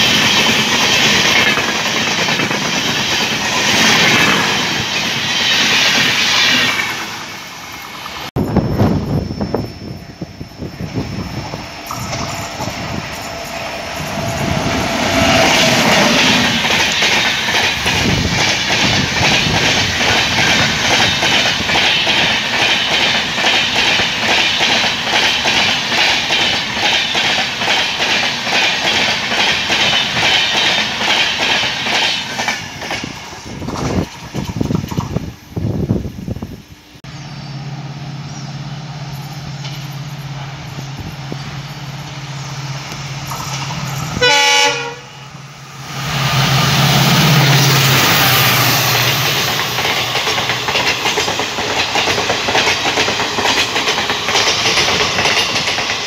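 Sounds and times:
wheels clickety-clack on rail joints: 0:00.0 - 0:08.3, 0:11.2 - 0:35.9, 0:39.1 - 0:45.0, 0:46.4 - 0:56.0
locomotive low hum: 0:00.0 - 0:24.1, 0:32.4 - 0:44.2
wind buffeting: 0:00.0 - 0:36.8, 0:45.3 - 0:56.0
train rushing past: 0:00.0 - 0:56.0.

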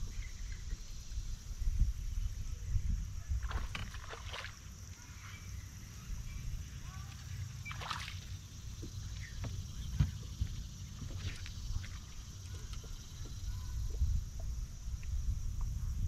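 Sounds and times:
wind rumble on microphone: 0:00.0 - 0:04.9, 0:05.5 - 0:16.0
fish splashing in water: 0:03.4 - 0:04.7, 0:07.6 - 0:08.6.

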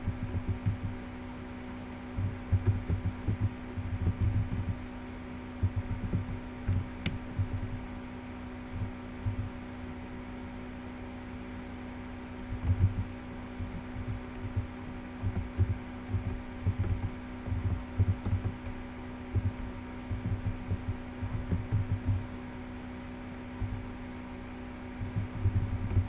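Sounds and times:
steady low hum: 0:00.0 - 0:26.0
typing on computer keyboard: 0:02.5 - 0:04.8, 0:12.5 - 0:13.0, 0:15.2 - 0:18.7, 0:19.3 - 0:22.2, 0:25.4 - 0:26.0.

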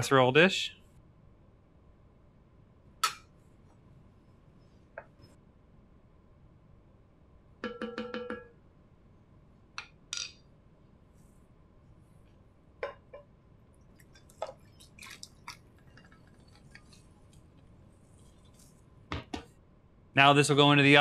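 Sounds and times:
knocks and clinks of pot: 0:07.6 - 0:08.5
wooden spoon tapping pot rim: 0:07.6 - 0:08.5.

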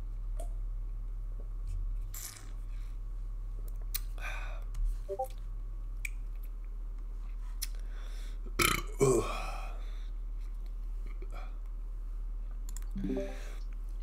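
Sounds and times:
steady low hum: 0:00.0 - 0:14.0
person breathing: 0:13.0 - 0:13.6.

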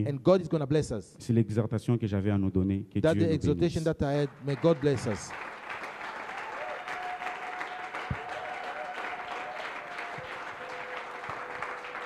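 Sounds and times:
congregation applauding: 0:04.1 - 0:12.0.

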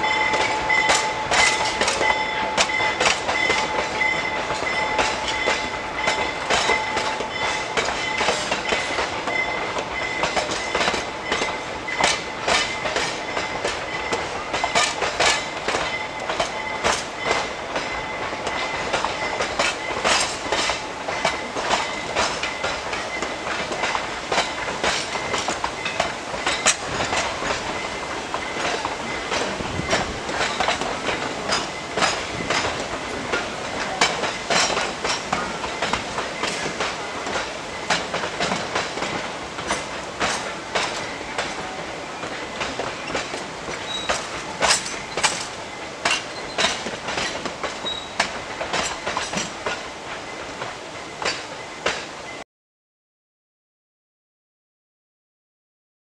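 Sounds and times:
train wheels clicking over rail joints: 0:00.0 - 0:52.4.

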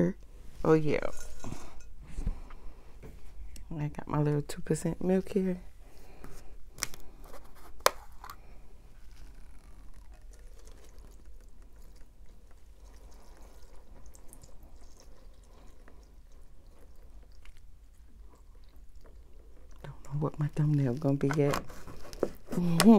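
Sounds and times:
milk pouring into cereal: 0:10.2 - 0:21.2.

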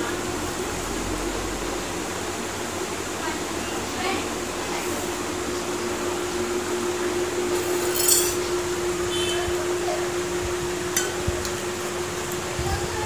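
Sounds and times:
steady hum: 0:00.0 - 0:13.0
metal tableware clinking: 0:07.8 - 0:08.4, 0:10.9 - 0:11.3.

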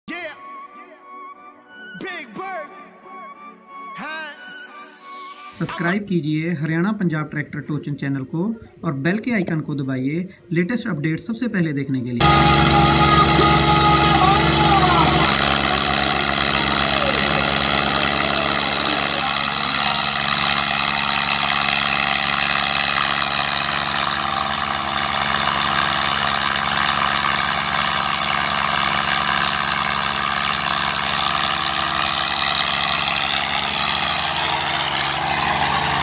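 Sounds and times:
diesel engines under load: 0:12.2 - 0:36.0.

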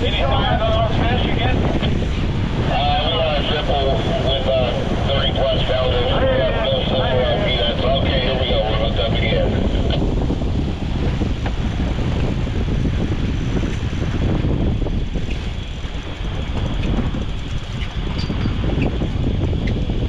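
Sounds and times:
outboard motors rumbling: 0:00.0 - 0:20.0
wind buffeting microphone: 0:00.0 - 0:20.0.

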